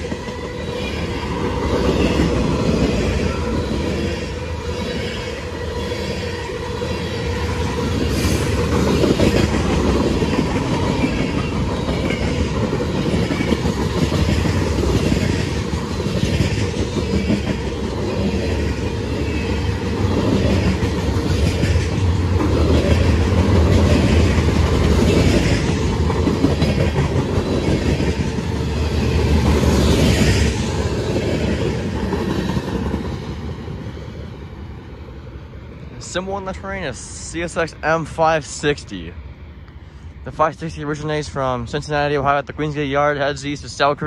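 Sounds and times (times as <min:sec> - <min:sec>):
freight train rumble: 0:00.0 - 0:44.0
train wheels clacking: 0:07.6 - 0:33.5.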